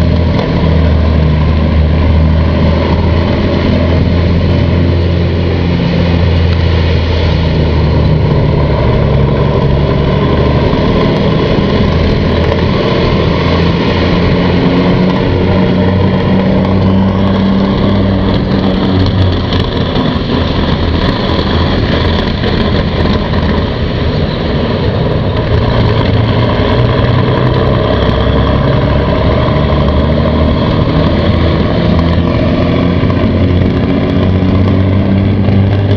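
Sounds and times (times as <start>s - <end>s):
vehicle engine running steadily: 0.0s - 35.9s.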